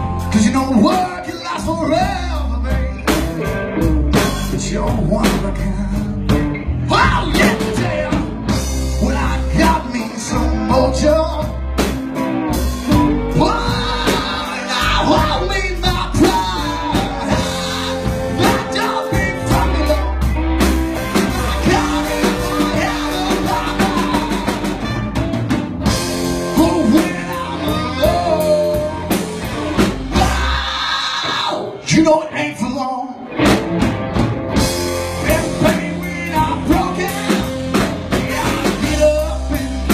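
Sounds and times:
drum kit with cymbals: 0:00.0 - 0:30.7, 0:33.5 - 0:39.9
blues-rock band playing: 0:00.0 - 0:39.9
electric guitars: 0:00.0 - 0:39.9
trumpet: 0:16.4 - 0:29.7
saxophone: 0:16.5 - 0:29.4.

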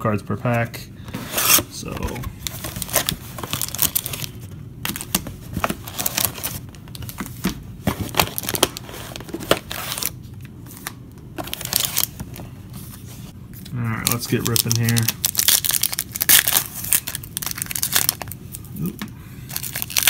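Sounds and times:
foil packs crinkling: 0:02.0 - 0:10.2, 0:11.4 - 0:12.3, 0:13.9 - 0:18.4, 0:19.5 - 0:20.0.

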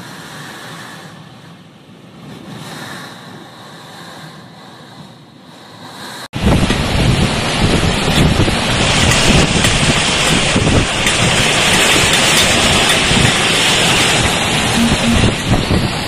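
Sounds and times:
strong wind buffeting microphone: 0:06.3 - 0:16.0.

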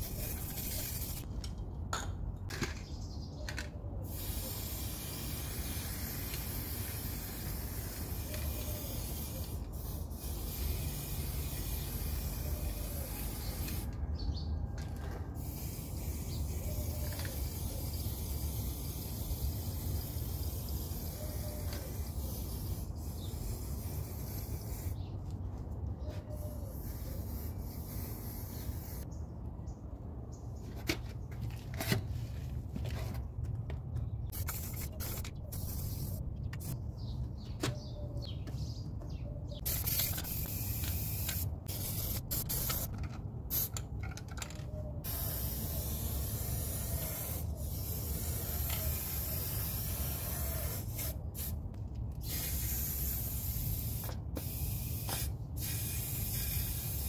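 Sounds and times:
spray-paint can hissing: 0:00.0 - 0:01.3, 0:04.0 - 0:13.9, 0:15.4 - 0:25.0, 0:26.7 - 0:29.0, 0:34.3 - 0:36.8, 0:39.6 - 0:43.7, 0:45.0 - 0:51.6, 0:52.2 - 0:57.0.

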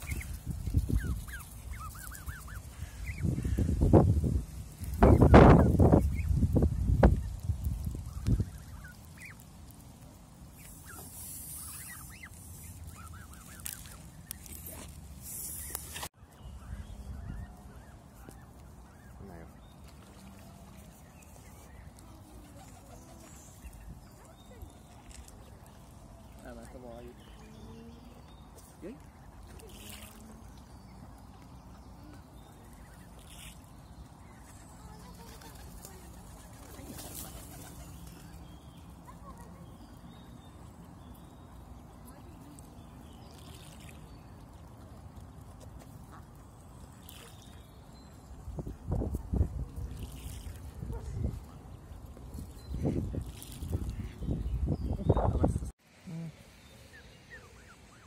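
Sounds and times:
duck and ducklings calling: 0:00.0 - 0:04.1, 0:04.8 - 0:09.6, 0:10.5 - 0:14.9, 0:15.5 - 0:47.7
goslings peeping: 0:00.0 - 0:55.5, 0:56.5 - 0:58.0.

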